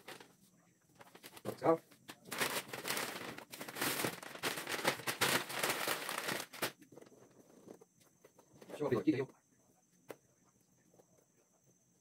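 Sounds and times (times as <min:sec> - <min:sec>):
wrapping paper crackling rustle: 0:00.0 - 0:00.3, 0:01.0 - 0:07.0.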